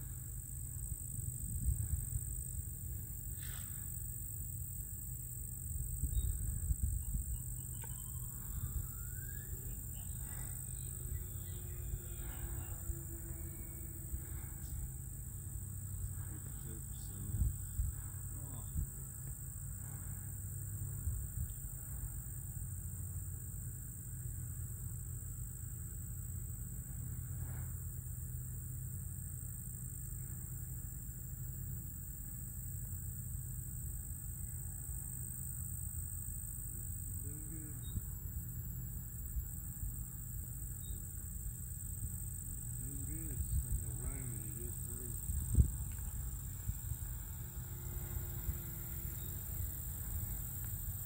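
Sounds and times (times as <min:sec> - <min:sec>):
high-pitched hiss: 0:00.0 - 0:23.7, 0:24.6 - 0:51.0
wind buffeting microphone: 0:05.8 - 0:07.5, 0:45.0 - 0:47.3.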